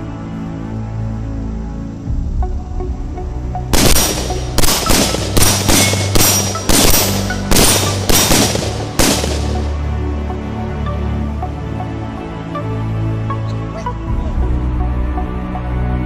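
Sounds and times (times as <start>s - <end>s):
background music: 0.0s - 16.0s
gunshots: 3.8s - 9.8s.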